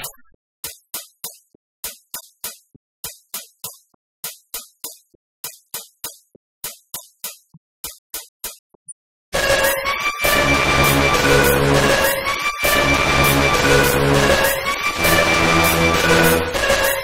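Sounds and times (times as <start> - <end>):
electronic drum-machine hits: 9.4 - 17.0.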